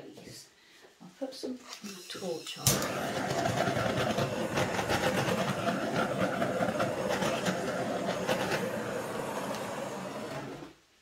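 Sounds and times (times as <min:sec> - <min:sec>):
gas torch hissing: 0:02.1 - 0:10.8.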